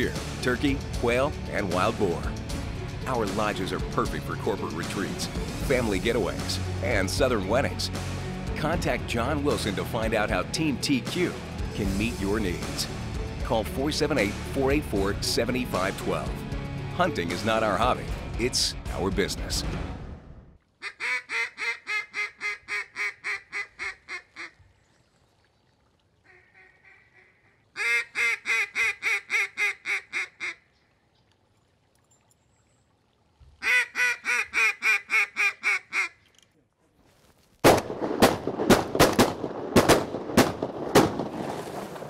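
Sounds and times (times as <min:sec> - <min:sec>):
duck quacking: 0:20.8 - 0:24.6, 0:26.3 - 0:30.7, 0:33.6 - 0:36.2
shotgun blasts: 0:37.6 - 0:42.0.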